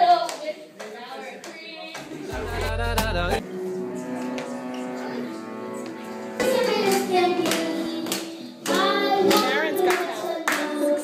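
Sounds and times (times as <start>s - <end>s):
keyboard and acoustic guitar: 2.3s - 7.3s
bowed cello and double bass: 2.4s - 6.3s
child singing into microphone: 6.4s - 11.0s.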